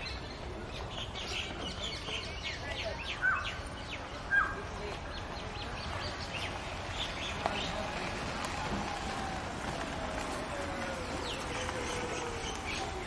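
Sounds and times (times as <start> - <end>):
sharp bird calls: 0.0 - 7.8
birds chirping: 0.0 - 13.0.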